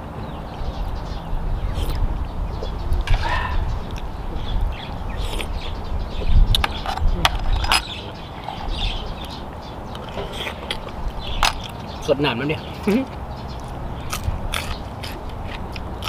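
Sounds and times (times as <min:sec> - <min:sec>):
bird chirping: 0:00.0 - 0:16.0
man chewing: 0:01.7 - 0:06.9, 0:07.6 - 0:11.9, 0:13.0 - 0:16.0.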